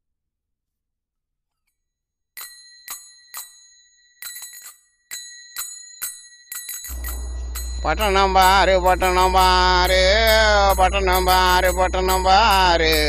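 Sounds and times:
small metal bell struck: 2.4s - 13.0s.

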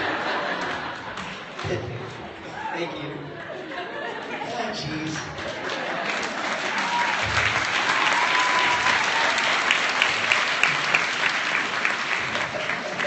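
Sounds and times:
audience applauding: 0.0s - 1.9s, 5.0s - 13.0s.

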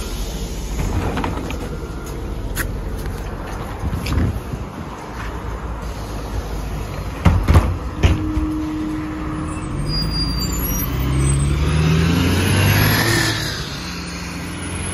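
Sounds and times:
bus doors closing with knocks: 0.2s - 2.8s, 7.1s - 10.0s
bus engine rising in pitch: 7.9s - 14.9s.

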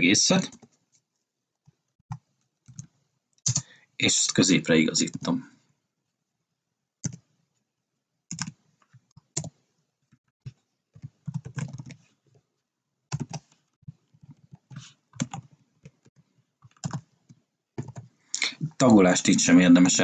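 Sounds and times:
computer keyboard typing: 2.1s - 3.7s, 7.0s - 7.3s, 8.3s - 9.6s, 10.4s - 12.1s, 13.1s - 18.2s.

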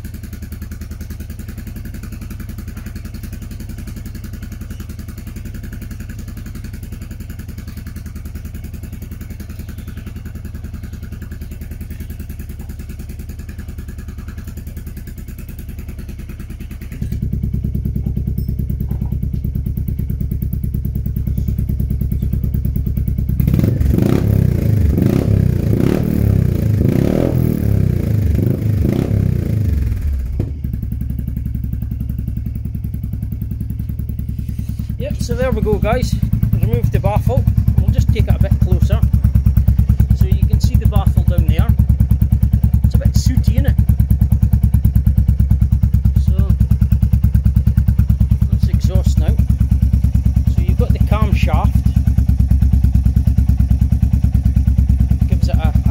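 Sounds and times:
motorcycle engine idling: 0.0s - 55.9s
engine revving with throttle blips: 1.5s - 55.9s.

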